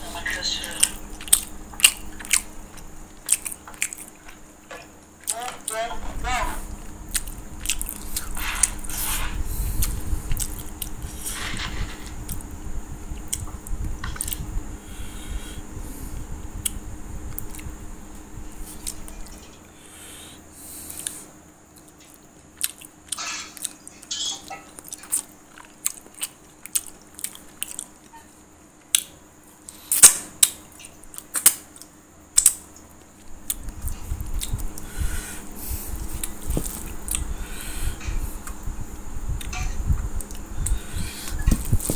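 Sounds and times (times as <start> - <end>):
person chewing food: 0.7 - 5.4, 6.8 - 11.5, 13.1 - 14.4, 16.6 - 17.8, 18.6 - 19.4, 20.0 - 24.0, 24.7 - 28.3, 28.9 - 39.6, 40.2 - 41.9
wet mouth clicks and smacks: 3.2 - 4.2, 14.1 - 14.4, 31.2 - 32.6, 36.2 - 37.3.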